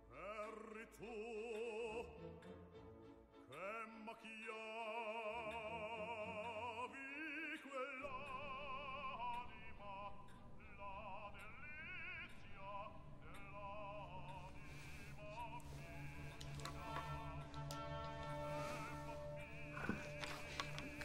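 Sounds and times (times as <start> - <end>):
person singing operatically: 0.0 - 2.5, 3.5 - 21.0
low sustained accompaniment: 8.0 - 21.0.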